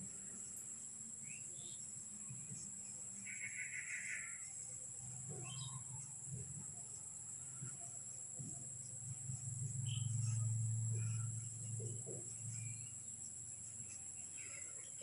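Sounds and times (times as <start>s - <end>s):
crickets buzzing: 0.0s - 15.0s
low hum: 4.4s - 15.0s.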